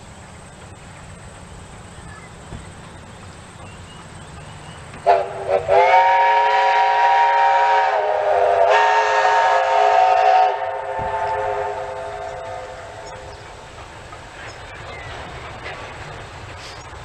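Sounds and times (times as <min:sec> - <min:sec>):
steam locomotive whistle: 0:05.0 - 0:13.4.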